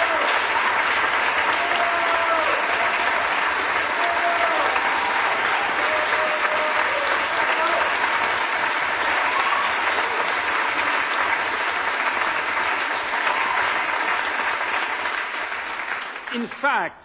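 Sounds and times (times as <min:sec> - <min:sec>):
audience applauding: 0:00.0 - 0:16.9.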